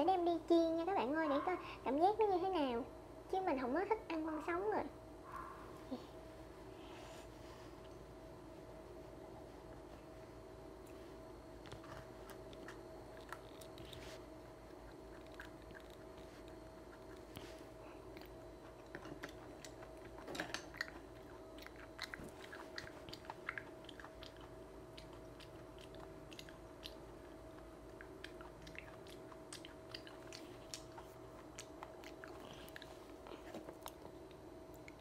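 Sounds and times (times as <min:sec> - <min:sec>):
faint steady hum: 0:00.0 - 0:35.0
person chewing wetly: 0:11.6 - 0:35.0.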